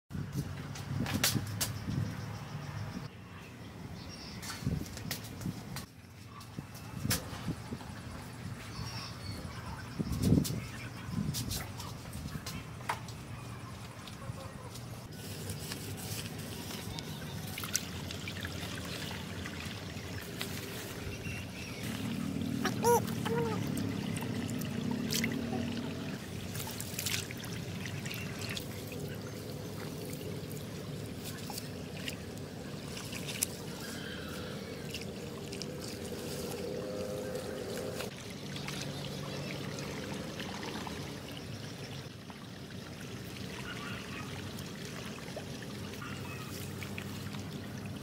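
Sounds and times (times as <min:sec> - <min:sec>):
muddy water trickling and splashing: 0:04.2 - 0:48.0
hands rustling in mud and grass: 0:14.7 - 0:18.8, 0:20.1 - 0:22.8, 0:26.3 - 0:38.1.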